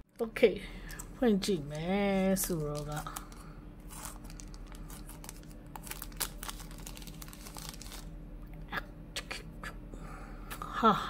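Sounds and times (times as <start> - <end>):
plastic wrapper crinkling: 2.2 - 8.1.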